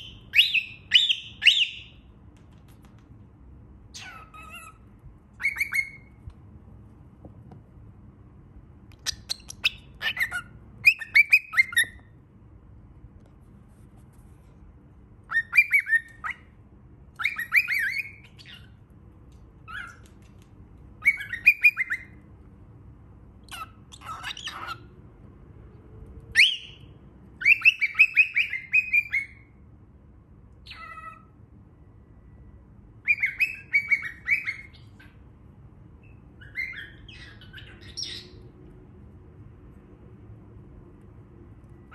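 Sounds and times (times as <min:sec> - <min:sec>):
cockatiel chirping: 0:00.0 - 0:02.1, 0:03.9 - 0:06.3, 0:08.9 - 0:12.1, 0:15.2 - 0:16.5, 0:17.1 - 0:18.8, 0:19.6 - 0:20.2, 0:21.0 - 0:22.2, 0:23.4 - 0:24.9, 0:26.3 - 0:29.6, 0:30.6 - 0:31.3, 0:33.0 - 0:35.2, 0:36.0 - 0:38.4
low steady hum: 0:00.0 - 0:41.9.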